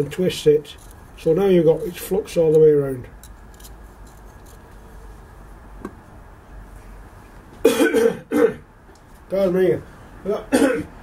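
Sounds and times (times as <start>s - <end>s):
man coughing: 7.6s - 8.6s, 10.3s - 10.9s.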